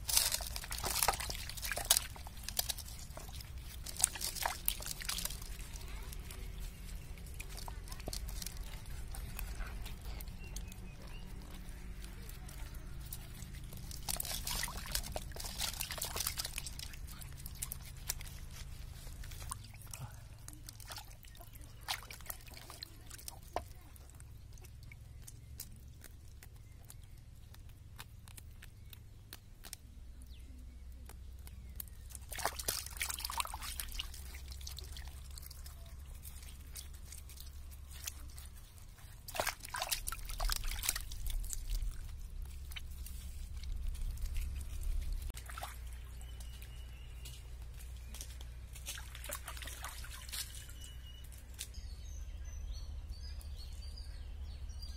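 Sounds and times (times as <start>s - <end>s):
water sloshing in a metal pot: 0.0s - 6.3s, 13.0s - 24.9s, 32.3s - 38.4s.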